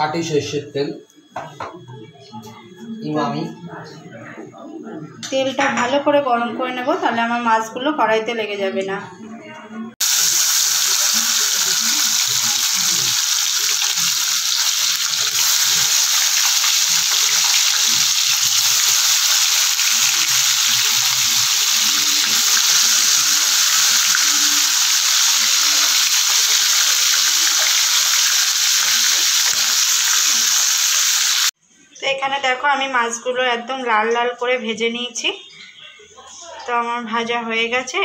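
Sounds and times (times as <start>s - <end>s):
fish sizzling in hot oil: 10.0s - 31.5s.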